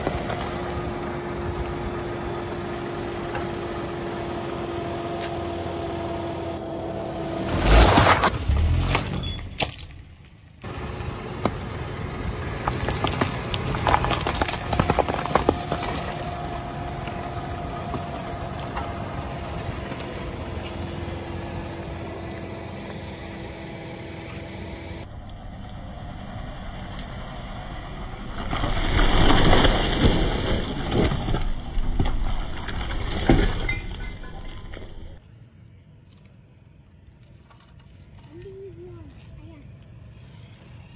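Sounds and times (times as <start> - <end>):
tire crushing soft objects: 0.0 - 2.7, 5.1 - 25.1, 28.1 - 38.4
car engine humming: 0.0 - 28.5.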